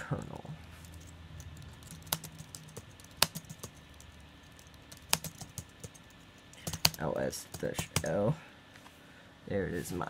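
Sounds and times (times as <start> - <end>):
typing on laptop keyboard: 0.2 - 8.1.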